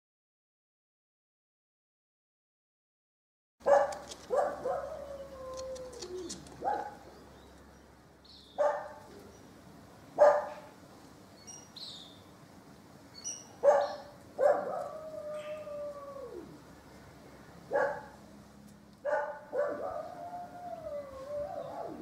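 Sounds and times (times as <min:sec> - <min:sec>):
dog barking: 0:03.6 - 0:05.1, 0:06.6 - 0:07.0, 0:08.6 - 0:09.1, 0:10.2 - 0:10.7, 0:13.6 - 0:14.9, 0:17.7 - 0:18.2, 0:19.0 - 0:20.1
dog whining: 0:04.3 - 0:06.9.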